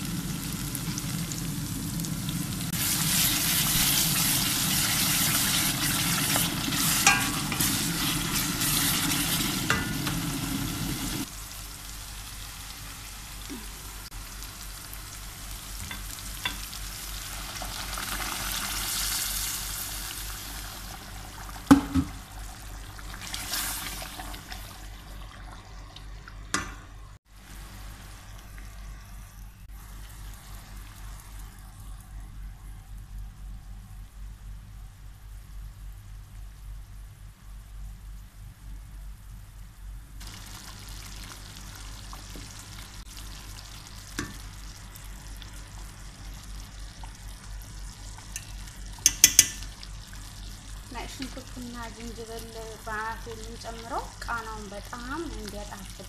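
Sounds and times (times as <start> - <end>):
sauce sizzling in a pot: 0.0 - 32.2, 40.2 - 56.0
spoon knocking against pot: 49.0 - 49.6.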